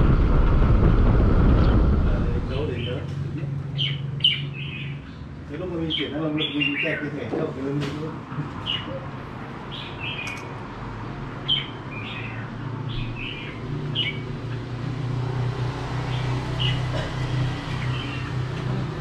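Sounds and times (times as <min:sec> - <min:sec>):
low hum: 0:00.0 - 0:05.2
birds chirping: 0:01.4 - 0:19.0.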